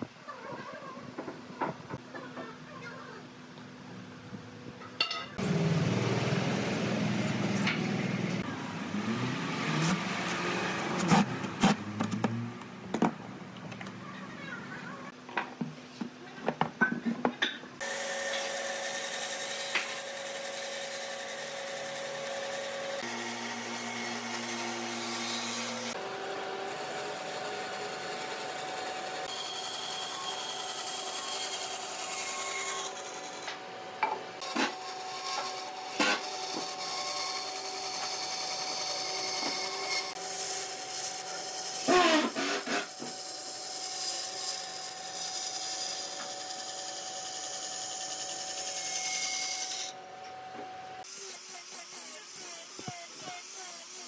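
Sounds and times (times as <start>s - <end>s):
power tools running on wood: 17.8s - 31.3s, 41.8s - 43.2s.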